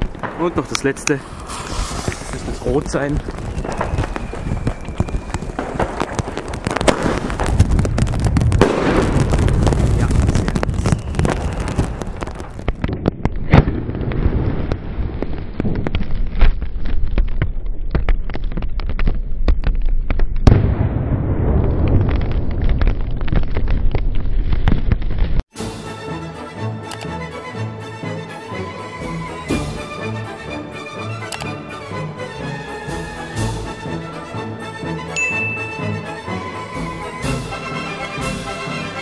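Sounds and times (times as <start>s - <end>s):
sharp firework bangs: 0.0s - 15.9s, 20.4s - 24.0s
continuous fireworks din: 0.0s - 25.6s, 29.0s - 39.0s.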